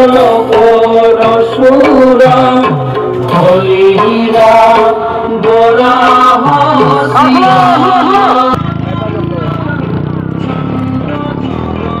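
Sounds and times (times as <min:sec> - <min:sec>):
person singing: 0:00.0 - 0:09.3
tabla strokes: 0:00.0 - 0:11.9.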